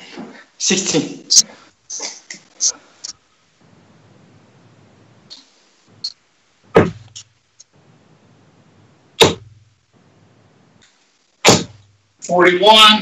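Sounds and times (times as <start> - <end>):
darts thudding into dartboard: 6.7 - 7.2, 9.2 - 9.7, 11.4 - 11.9.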